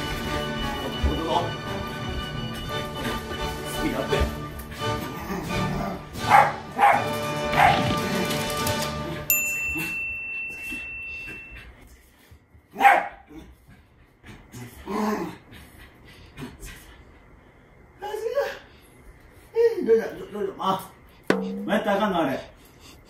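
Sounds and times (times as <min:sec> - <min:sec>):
background music: 0:00.0 - 0:09.3
dog barking: 0:06.2 - 0:07.8, 0:12.8 - 0:13.3.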